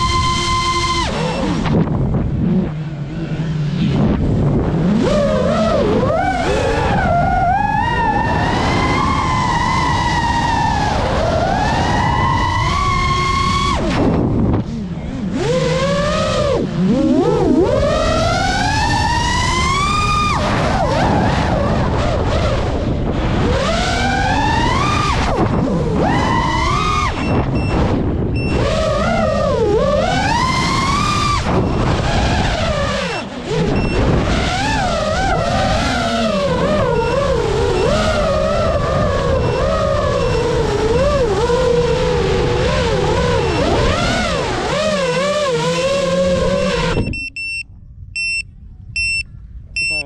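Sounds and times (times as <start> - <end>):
wind rush: 0.0 - 15.4, 16.7 - 36.3
drone motors whining: 0.0 - 50.0.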